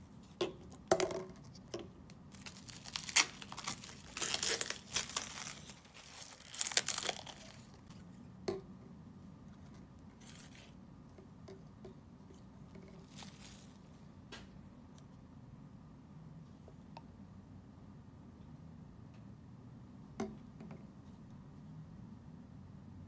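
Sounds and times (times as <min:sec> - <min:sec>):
plastic packaging crinkling and tearing: 0:02.3 - 0:08.0, 0:13.0 - 0:13.8.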